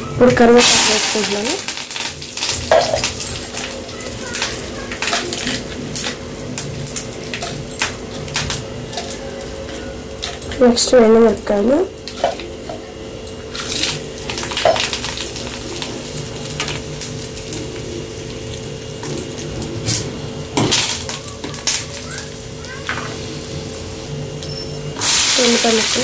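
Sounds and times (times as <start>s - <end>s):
steady hum: 0.0s - 26.0s
hot oil sizzling in a pan: 0.4s - 26.0s
utensils clinking against pan: 0.6s - 10.9s.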